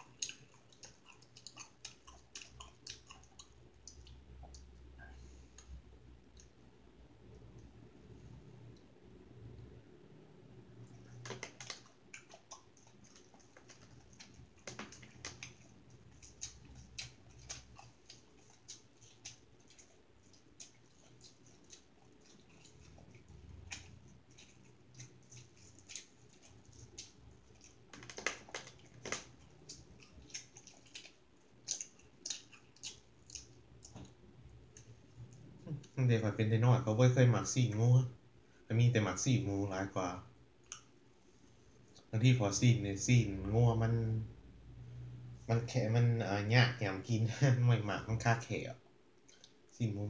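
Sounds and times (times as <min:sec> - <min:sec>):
person eating: 0:00.0 - 0:06.6, 0:10.8 - 0:36.0.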